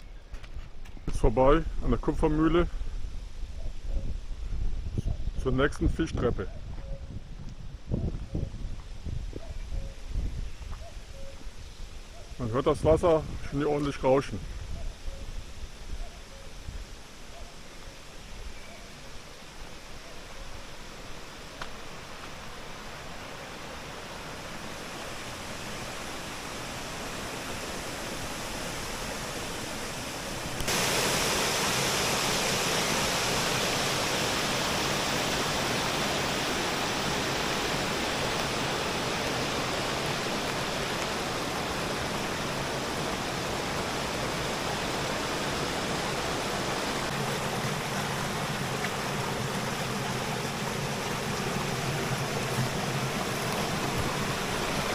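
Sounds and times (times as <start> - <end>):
water rushing and splashing: 18.9 - 54.9.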